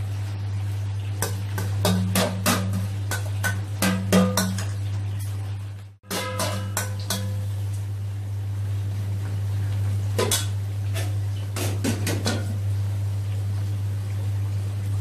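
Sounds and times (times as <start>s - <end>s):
oil sizzling in a wok: 0.0s - 15.0s
metal utensils clinking: 6.0s - 7.4s.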